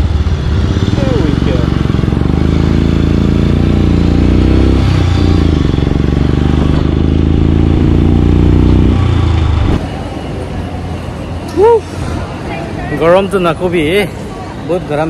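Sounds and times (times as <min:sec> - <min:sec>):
motorcycle engine running: 0:00.0 - 0:09.8.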